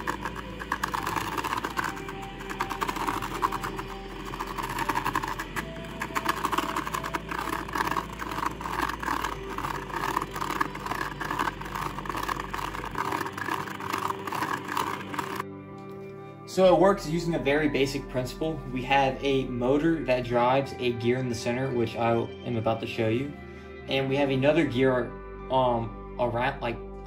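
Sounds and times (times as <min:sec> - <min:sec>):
small motor whirring: 0:00.0 - 0:15.4
steel ball rattling through sand: 0:00.0 - 0:15.4.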